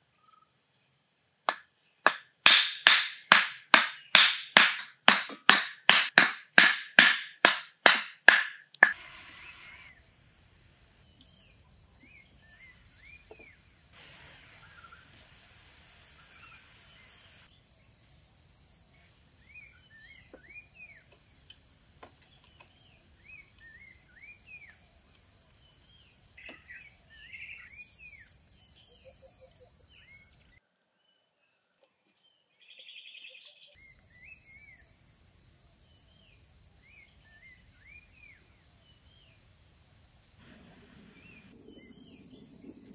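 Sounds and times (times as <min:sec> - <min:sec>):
high-pitched insect drone: 0:07.1 - 0:10.6, 0:12.4 - 0:21.0, 0:27.4 - 0:31.8, 0:40.2 - 0:41.8.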